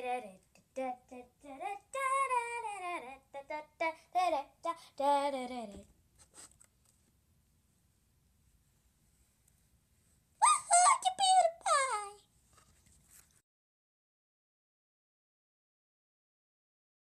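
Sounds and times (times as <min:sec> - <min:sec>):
girl singing: 0:00.0 - 0:05.9, 0:10.4 - 0:12.2.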